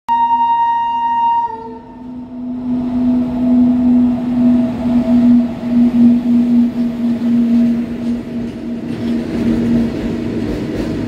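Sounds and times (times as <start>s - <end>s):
locomotive horn: 0.1s - 8.2s
locomotive passing with hum: 0.2s - 11.0s.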